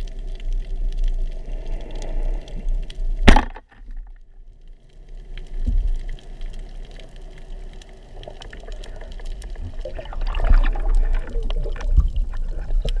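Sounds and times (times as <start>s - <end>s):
underwater water swirling: 0.0s - 3.8s, 5.5s - 13.0s
air bubbles gurgling: 5.8s - 13.0s.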